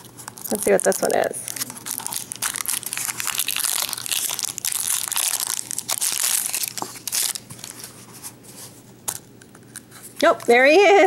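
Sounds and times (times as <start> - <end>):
plastic wrapper crinkling: 0.0 - 8.1.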